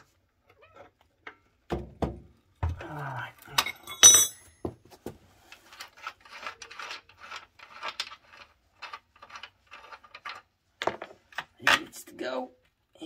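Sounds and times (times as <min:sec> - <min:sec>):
tools scraping and rubbing: 0:03.8 - 0:12.0.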